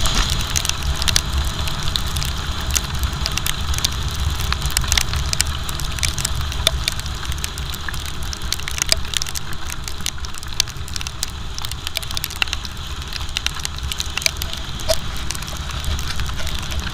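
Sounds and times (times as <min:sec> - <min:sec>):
raindrops ticking on rain cover: 0:00.0 - 0:16.9
wind rumble: 0:00.0 - 0:16.9
motorcycle running: 0:12.6 - 0:16.9.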